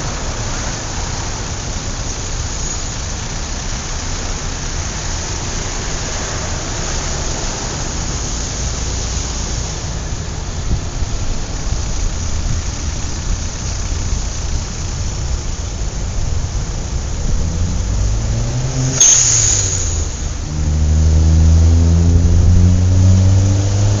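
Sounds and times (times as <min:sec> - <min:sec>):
city traffic rumbling: 0:00.0 - 0:24.0
loud engine droning nearby: 0:00.0 - 0:24.0
vehicle engine accelerating: 0:03.1 - 0:24.0
short sharp hiss: 0:18.6 - 0:20.4.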